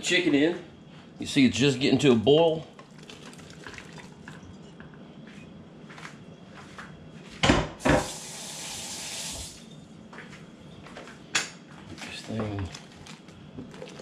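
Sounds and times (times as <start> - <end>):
kitchen faucet running: 7.9 - 9.6.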